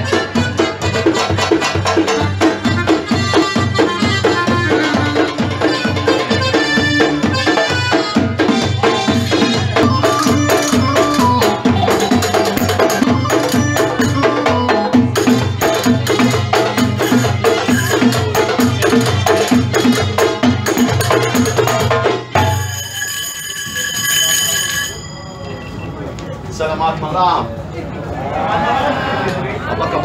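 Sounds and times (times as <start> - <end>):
frame drums beating: 0.0 - 23.0.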